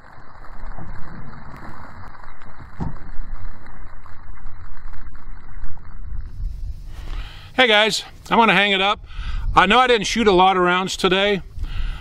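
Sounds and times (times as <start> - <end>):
wind on microphone: 0.0 - 12.0
dull thump: 2.8 - 3.1.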